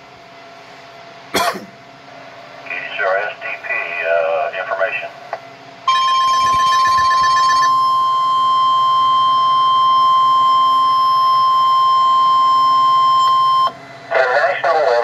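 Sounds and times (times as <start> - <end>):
rapid beeping: 5.9 - 9.5
steady high alert tone: 5.9 - 9.6.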